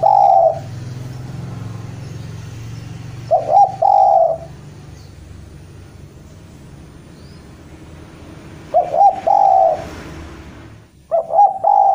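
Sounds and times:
dove cooing: 0.0s - 0.8s, 3.2s - 4.6s, 8.7s - 9.9s, 11.1s - 11.9s.

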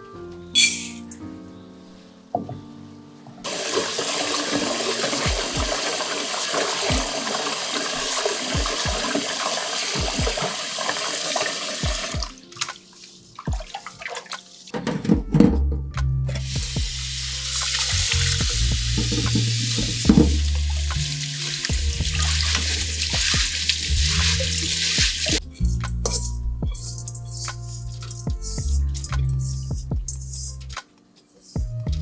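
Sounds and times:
tap water running into steel bowl: 3.5s - 12.8s, 17.4s - 25.4s.

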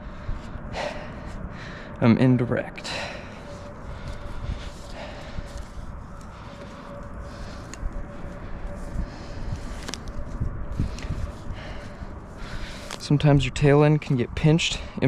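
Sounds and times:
low uneven rumble: 0.0s - 15.0s
rope rustling and rubbing: 3.4s - 13.2s.

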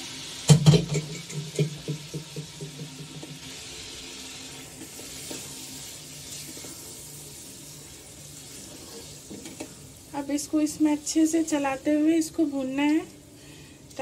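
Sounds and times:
meat sizzling in a wok: 0.0s - 13.4s
spatula scraping and tapping pan: 4.8s - 5.5s, 8.5s - 9.8s.

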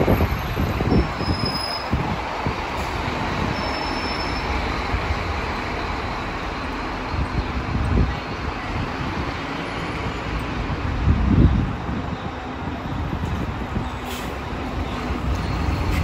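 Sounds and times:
wind on microphone: 0.0s - 3.6s, 7.1s - 16.0s
bus engine and road noise: 0.0s - 16.0s.

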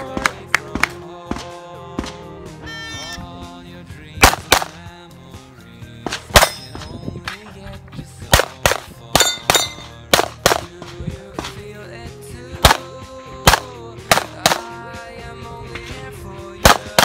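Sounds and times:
background music: 0.0s - 17.0s
pistol shots: 4.2s - 4.9s, 6.1s - 6.9s, 8.3s - 11.5s, 12.6s - 14.8s, 16.6s - 17.0s.

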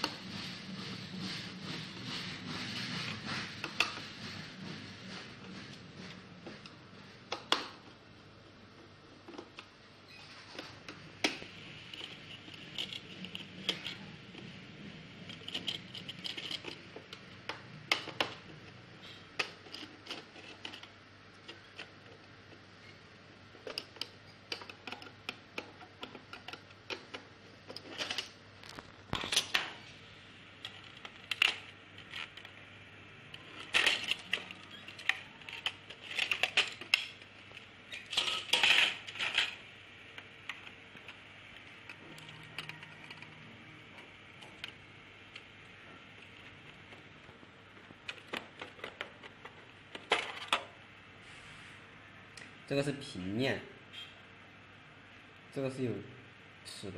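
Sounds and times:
small parts clicking and clattering: 10.5s - 22.3s, 23.5s - 29.8s, 30.6s - 43.4s, 46.2s - 50.8s.

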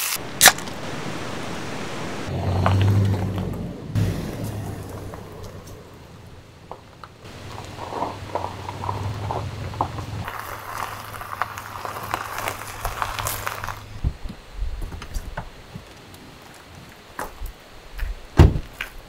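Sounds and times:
car engine running low: 2.0s - 14.2s
tyres crunching on gravel: 2.3s - 19.0s
dull thuds: 18.4s - 18.9s.

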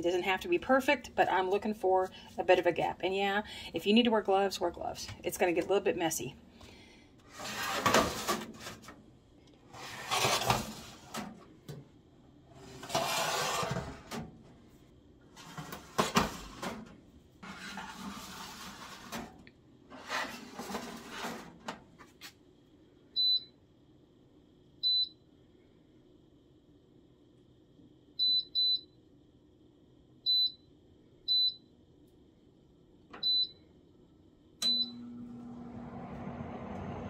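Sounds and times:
wire racks scraping and rattling: 7.3s - 9.0s, 9.7s - 11.4s, 12.5s - 14.3s, 15.4s - 21.8s.

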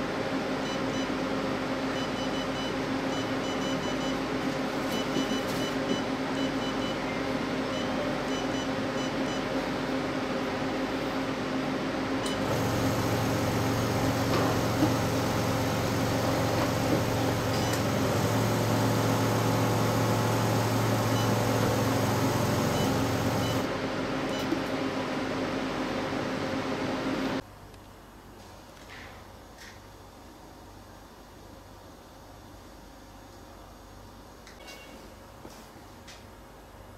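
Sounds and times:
machine humming: 12.1s - 24.4s
pump running: 12.4s - 23.7s.

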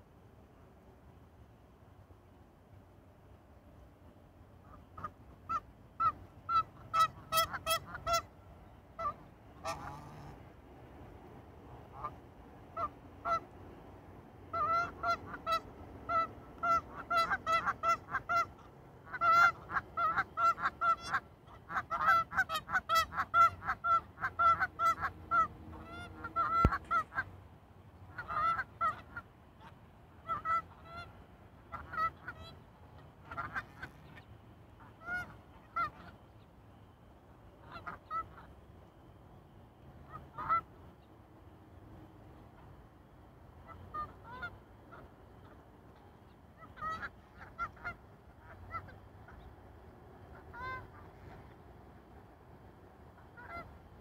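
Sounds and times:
geese honking: 4.6s - 10.4s, 11.9s - 13.5s, 14.5s - 27.3s, 28.0s - 36.4s, 37.6s - 38.6s, 40.1s - 40.8s, 43.6s - 49.5s, 50.3s - 51.6s, 53.1s - 53.8s.

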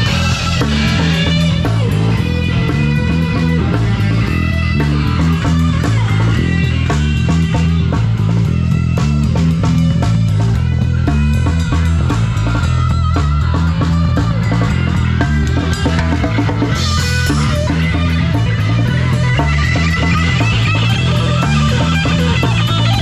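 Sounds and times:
bass line: 0.0s - 23.0s
drum kit: 0.0s - 23.0s
electric guitar: 0.0s - 23.0s.

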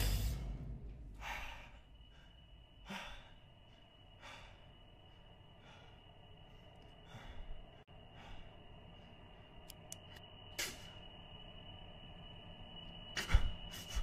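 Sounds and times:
faint slow breaths: 0.0s - 9.6s
faint steady high whine: 0.0s - 14.0s.

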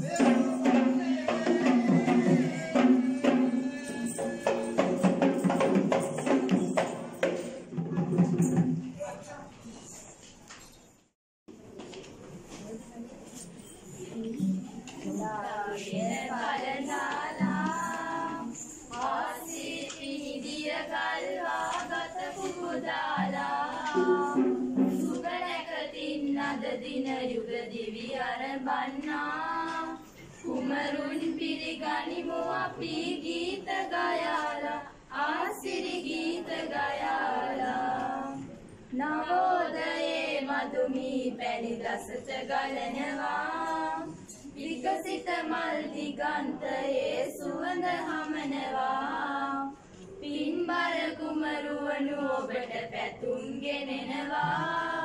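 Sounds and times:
girls singing without accompaniment: 0.0s - 7.2s, 14.3s - 55.0s.

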